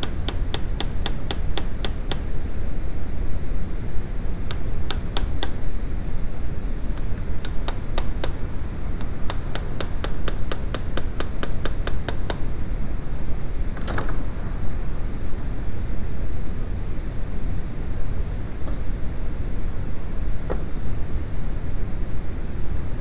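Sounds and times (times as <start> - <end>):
hammer tapping metal punch: 0.0 - 2.2, 4.5 - 5.6, 7.0 - 8.4, 9.0 - 12.4
low background rumble: 0.0 - 23.0.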